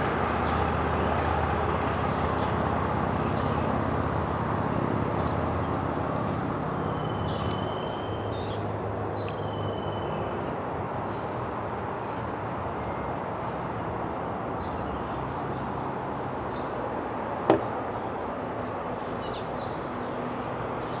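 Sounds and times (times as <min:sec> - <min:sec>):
distant traffic hum: 0:00.0 - 0:21.0.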